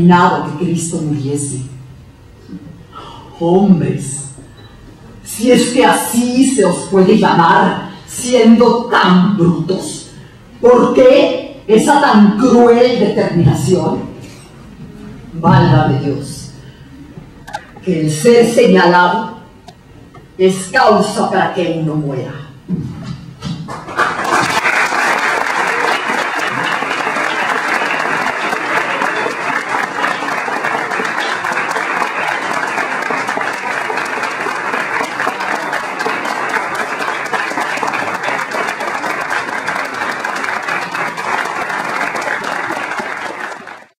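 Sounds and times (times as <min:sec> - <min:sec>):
audience applauding: 0:23.7 - 0:44.0.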